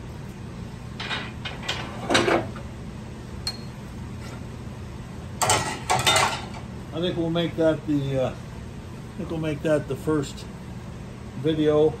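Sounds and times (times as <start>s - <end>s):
steady low hum: 0.0s - 12.0s
metal clunks and scrapes: 1.0s - 2.6s.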